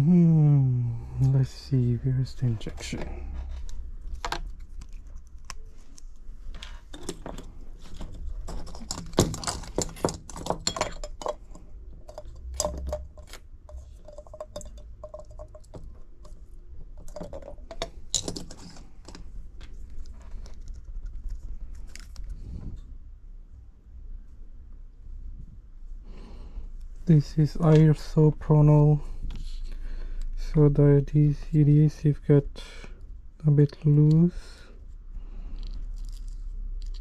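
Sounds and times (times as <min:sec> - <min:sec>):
tools and phone parts clicking: 0:04.1 - 0:20.8.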